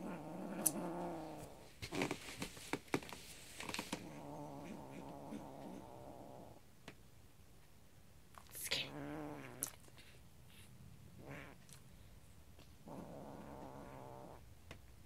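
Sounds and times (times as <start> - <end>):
kitten growling: 0.0 - 2.2, 3.8 - 6.6, 8.5 - 10.2, 11.1 - 12.0, 12.7 - 14.5.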